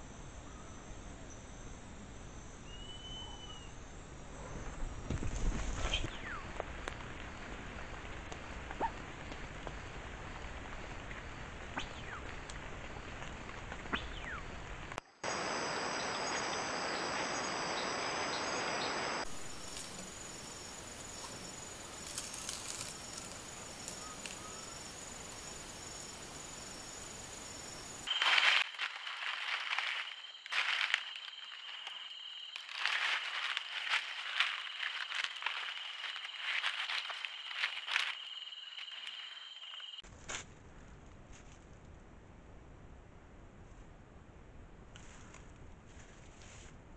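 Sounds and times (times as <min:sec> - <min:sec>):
high insect call: 0:00.0 - 0:40.0
steady outdoor hiss: 0:00.0 - 0:40.0
rustling of dry leaf litter: 0:18.4 - 0:26.8, 0:27.4 - 0:41.4.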